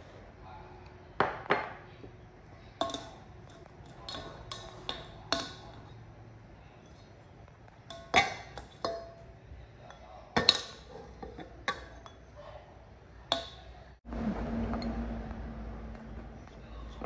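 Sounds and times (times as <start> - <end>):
ceramic dishes clinking: 2.8 - 6.0, 6.8 - 12.4
steady low hum: 11.2 - 17.0.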